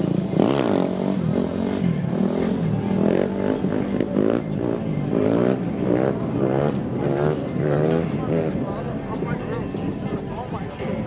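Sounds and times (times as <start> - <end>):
vehicle engine revving: 0.0 - 11.0.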